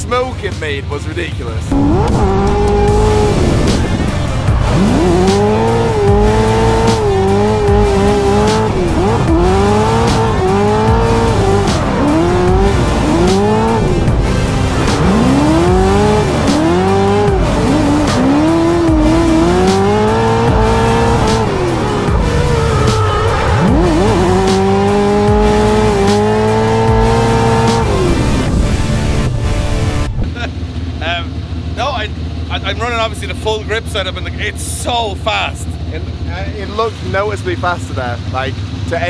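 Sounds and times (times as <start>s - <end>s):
car engine revving: 1.6s - 39.0s
background music with beat: 2.0s - 30.1s
tyres squealing: 14.9s - 25.1s.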